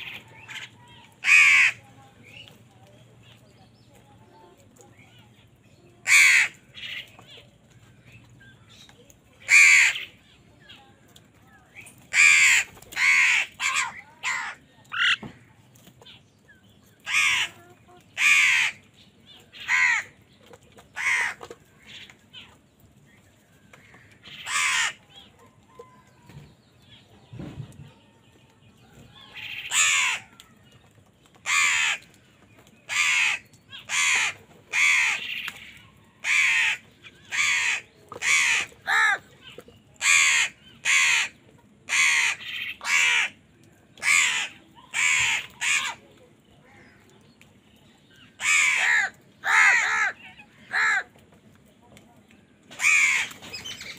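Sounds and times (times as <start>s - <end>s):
crows cawing: 0.0s - 1.8s, 6.0s - 7.1s, 9.5s - 10.2s, 12.1s - 15.3s, 17.0s - 17.6s, 18.2s - 18.8s, 19.6s - 20.2s, 21.0s - 22.2s, 23.8s - 25.3s, 29.3s - 30.5s, 31.4s - 32.2s, 32.9s - 35.6s, 36.2s - 39.3s, 40.0s - 43.4s, 44.0s - 46.0s, 48.4s - 51.1s, 52.8s - 53.5s.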